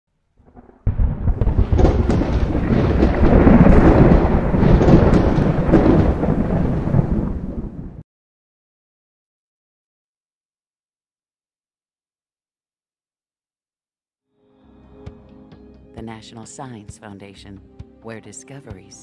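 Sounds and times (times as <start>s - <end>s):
rolling thunder with crackling: 0.4s - 8.0s.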